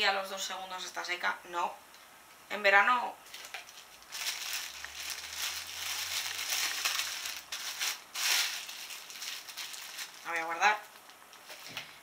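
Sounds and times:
plastic bag crinkling: 3.2 - 12.0.

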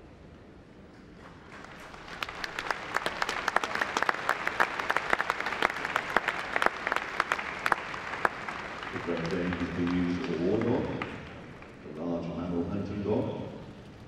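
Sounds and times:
audience applauding: 1.2 - 12.1.

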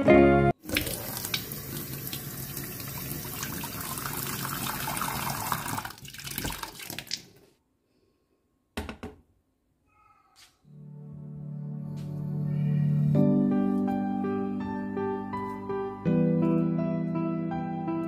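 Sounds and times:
tap water filling a metal pan: 0.6 - 7.3.

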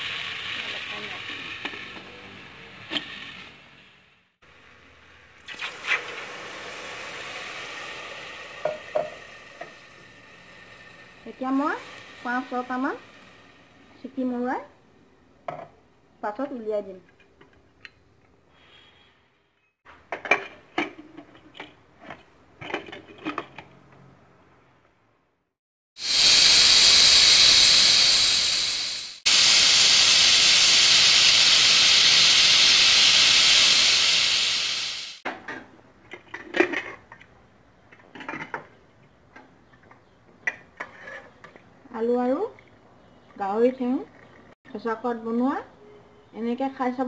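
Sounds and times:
pressure cooker steam whistling: 26.0 - 35.2.

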